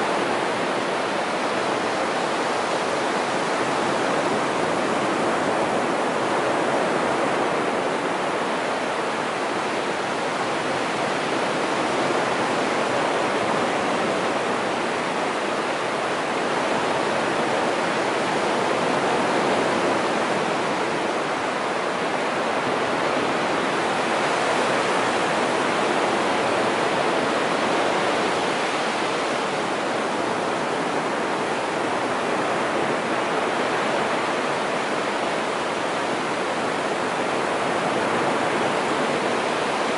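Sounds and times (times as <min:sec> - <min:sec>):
waves breaking on sand beach: 0:00.0 - 0:39.9.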